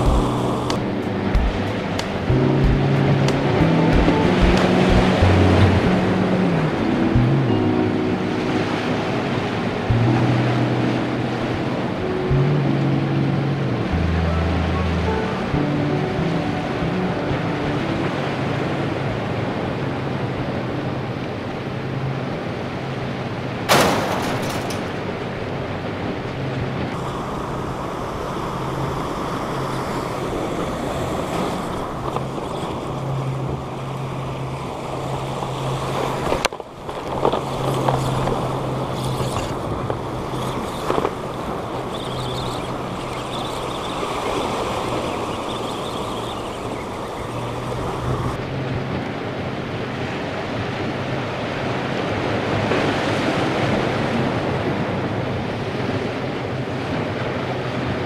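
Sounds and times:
sea washing against rock: 0:00.0 - 0:06.7, 0:26.9 - 0:48.4
steady low hum: 0:00.0 - 0:17.1, 0:37.4 - 0:49.9
wind on microphone: 0:00.0 - 0:23.5, 0:24.4 - 0:58.0.

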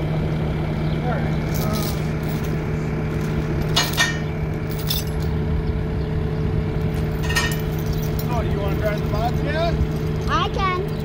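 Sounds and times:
loader engine idling: 0:00.0 - 0:11.0
steel chain clinking: 0:01.5 - 0:05.4, 0:06.9 - 0:11.0.

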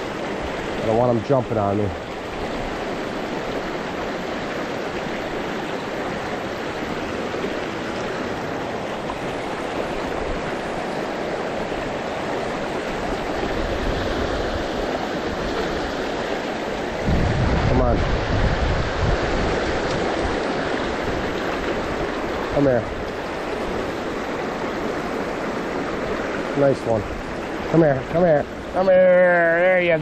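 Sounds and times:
creek water rushing over rocks: 0:00.0 - 0:30.0.

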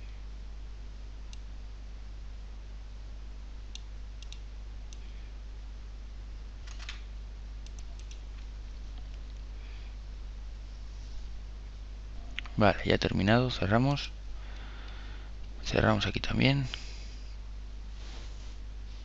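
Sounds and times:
low electrical hum: 0:00.0 - 0:19.0
faint sharp clicks: 0:01.3 - 0:01.5, 0:03.7 - 0:05.1, 0:07.6 - 0:09.5.

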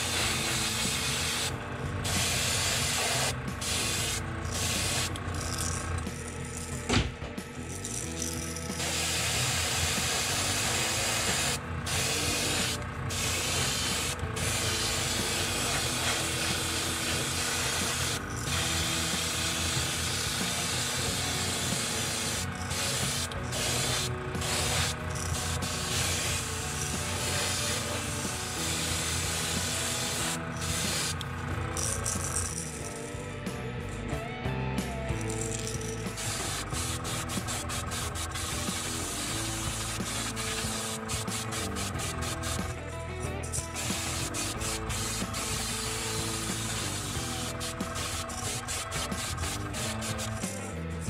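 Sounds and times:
airbrush spraying hiss: 0:00.0 - 0:05.8, 0:08.8 - 0:31.2, 0:36.2 - 0:42.8, 0:43.5 - 0:50.8.

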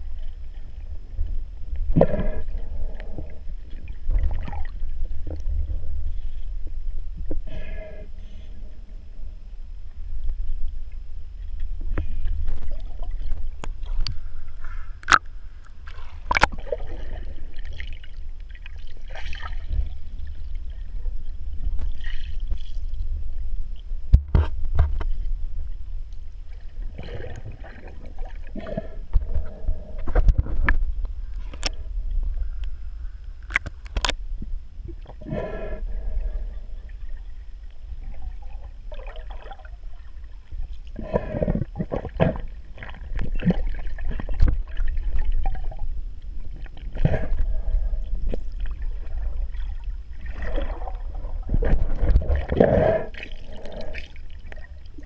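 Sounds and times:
water gurgling: 0:00.0 - 0:06.3, 0:15.0 - 0:23.5, 0:26.6 - 0:32.3, 0:34.8 - 0:55.0
deep underwater rumble: 0:00.0 - 0:55.0.

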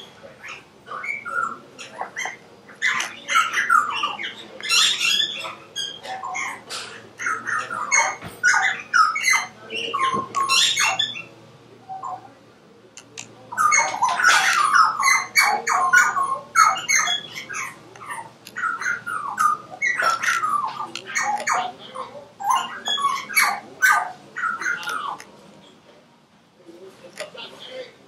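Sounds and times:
birds squawking and chirping: 0:00.0 - 0:25.8, 0:26.8 - 0:28.0.

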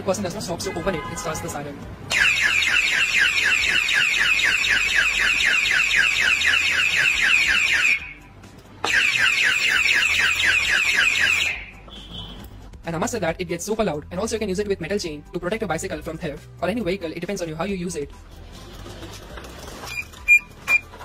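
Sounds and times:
alarm siren warbling: 0:02.1 - 0:08.2, 0:08.9 - 0:11.8.

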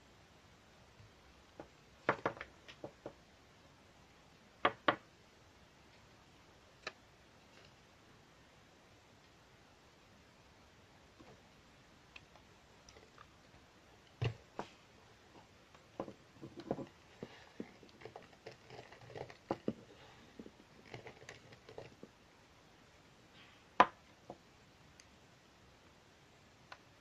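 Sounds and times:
soap shavings crackling: 0:17.1 - 0:22.1.

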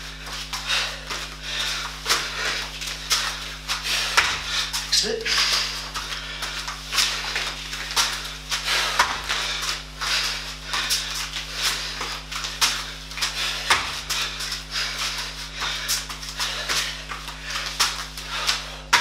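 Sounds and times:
bare feet slapping on mat: 0:00.0 - 0:19.0
low hum: 0:00.0 - 0:19.0.

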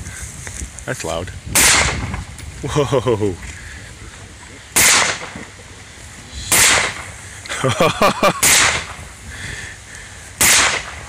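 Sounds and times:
rifle shots: 0:01.6 - 0:02.1, 0:04.8 - 0:05.4, 0:06.5 - 0:07.1, 0:08.3 - 0:09.0, 0:10.4 - 0:11.0.

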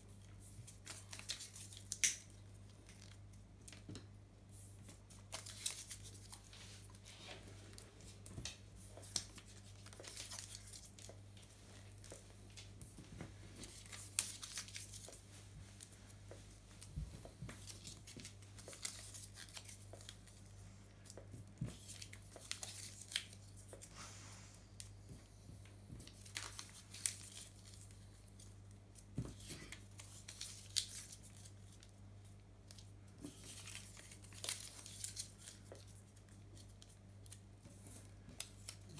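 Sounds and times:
paper crumpling: 0:05.0 - 0:12.7, 0:13.6 - 0:20.4, 0:26.0 - 0:28.0, 0:33.2 - 0:38.9.

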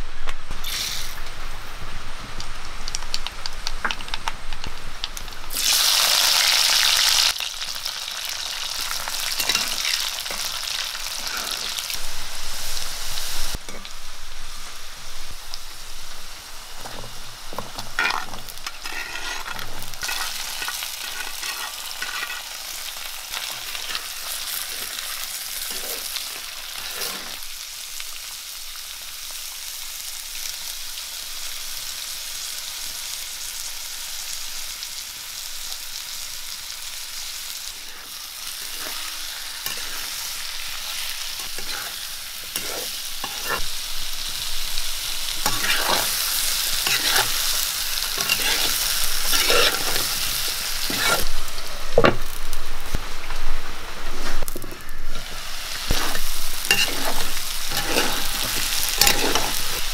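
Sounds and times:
food sizzling in hot oil: 0:00.6 - 0:59.9
spoon clicking and scraping: 0:55.9 - 0:59.9.

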